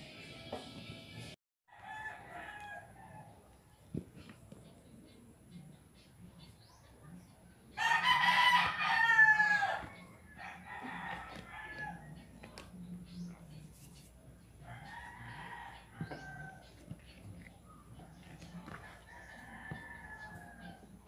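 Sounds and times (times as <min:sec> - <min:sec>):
rooster crowing: 0:01.7 - 0:03.4, 0:07.8 - 0:12.2, 0:14.6 - 0:16.7, 0:18.7 - 0:20.9.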